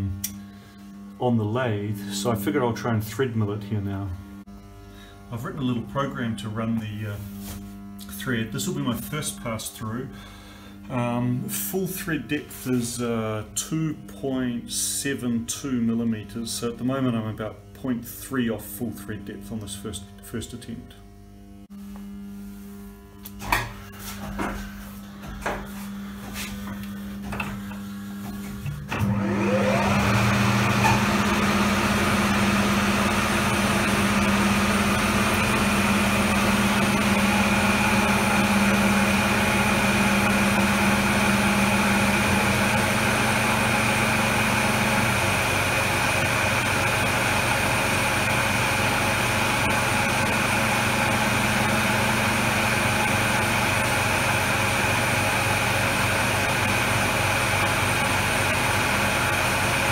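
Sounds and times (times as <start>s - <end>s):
milling machine spindle running: 27.4s - 59.9s
boring bar cutting metal: 28.4s - 44.9s.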